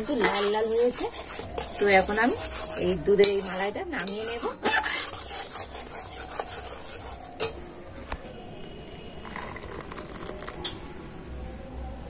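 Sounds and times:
metal ladle scraping metal pan: 0.0s - 8.2s
thick milk pouring into bowl: 9.2s - 10.7s.

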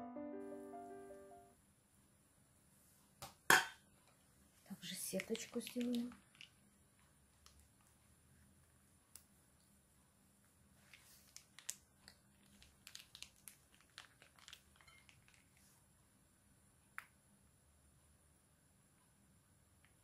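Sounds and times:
plastic pouch crinkling and clicking: 5.1s - 6.6s, 7.4s - 7.9s, 10.9s - 15.7s.

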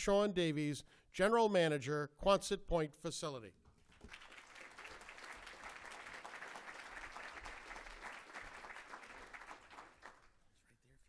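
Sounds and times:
audience applauding: 3.9s - 10.4s.

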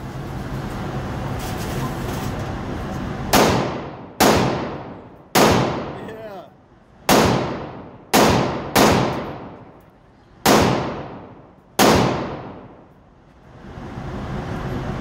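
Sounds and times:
pistol shots echoing indoors: 3.3s - 6.0s, 7.1s - 9.7s, 10.4s - 12.7s.

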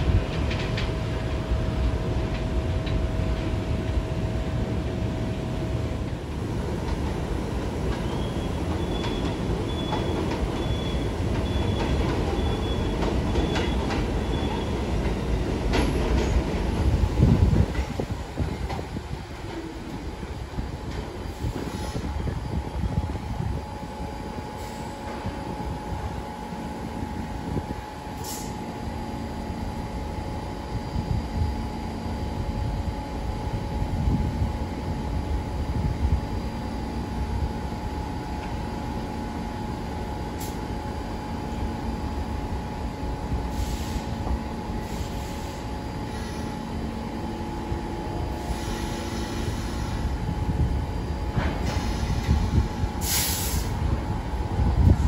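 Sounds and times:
subway train rumbling: 0.0s - 55.0s
short high hisses: 43.5s - 44.2s, 48.4s - 50.1s, 53.0s - 53.8s.

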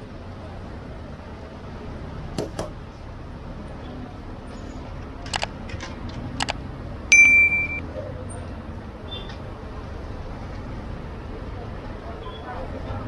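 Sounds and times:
steady background noise: 0.0s - 13.0s
sharp clicks: 5.3s - 5.5s.

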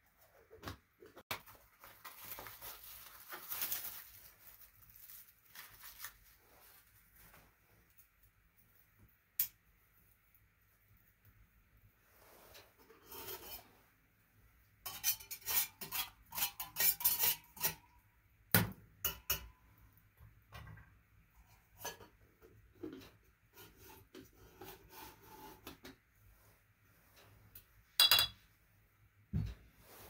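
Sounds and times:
metal scraping: 12.3s - 13.9s, 14.8s - 17.9s
metal pot and lid clinking: 14.9s - 17.8s, 28.0s - 28.4s.

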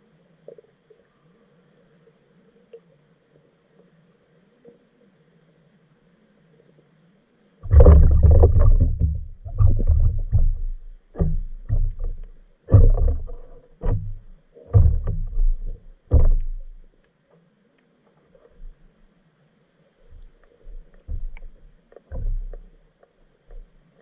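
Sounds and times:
water sloshing against camera: 7.6s - 19.1s, 19.9s - 24.0s.

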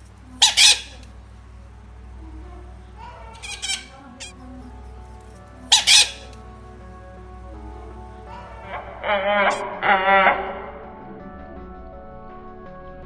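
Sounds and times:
background music: 0.0s - 13.0s
harsh animal squawks: 0.4s - 1.0s, 3.0s - 4.4s, 5.7s - 6.4s, 8.3s - 10.9s.

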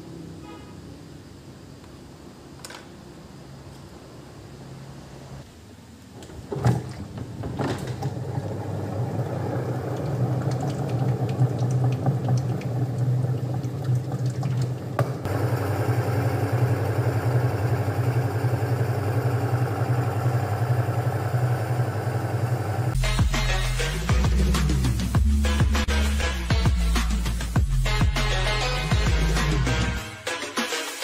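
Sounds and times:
washing machine motor humming: 6.0s - 23.0s.

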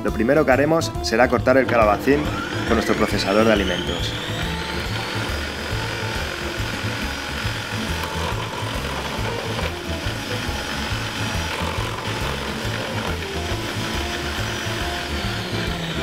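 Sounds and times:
food processor motor whir: 1.5s - 16.0s
vegetable being shredded: 1.9s - 16.0s.

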